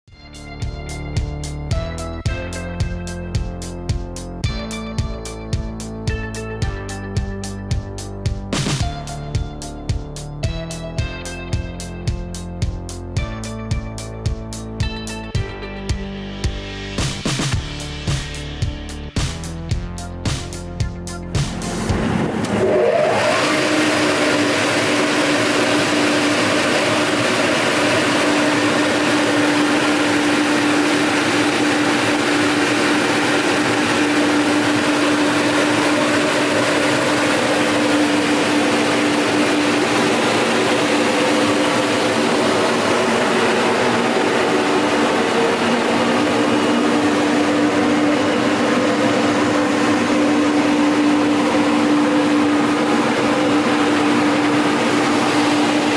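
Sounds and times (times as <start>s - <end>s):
extraction fan running: 21.5s - 55.9s.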